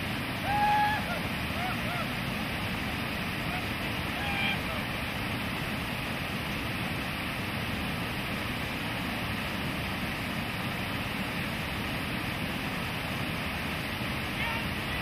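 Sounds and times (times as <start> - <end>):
river rapids rushing: 0.0 - 15.0.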